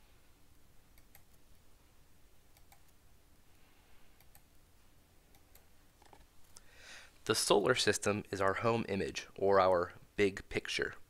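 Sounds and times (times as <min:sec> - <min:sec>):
room hiss: 0:00.0 - 0:11.0
computer mouse clicks: 0:00.9 - 0:01.6, 0:02.5 - 0:03.0, 0:04.2 - 0:04.5, 0:05.3 - 0:06.7.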